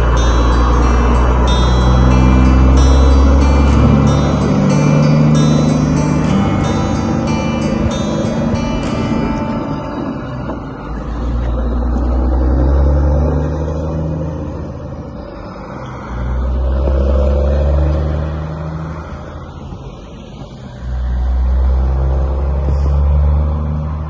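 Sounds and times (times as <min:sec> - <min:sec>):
diesel truck engine pulling away: 0:00.0 - 0:24.0.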